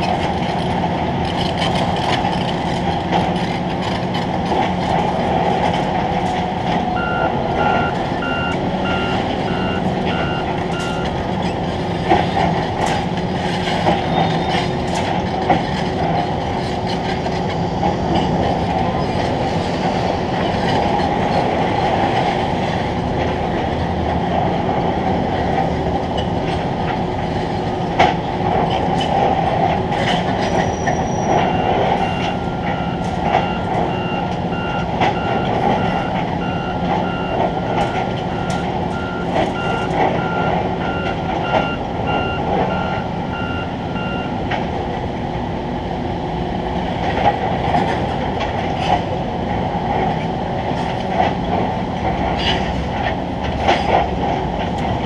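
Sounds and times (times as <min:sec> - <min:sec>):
heavy machinery rumbling: 0:00.0 - 0:55.0
backup alarm beeping: 0:07.0 - 0:11.2, 0:30.8 - 0:44.4.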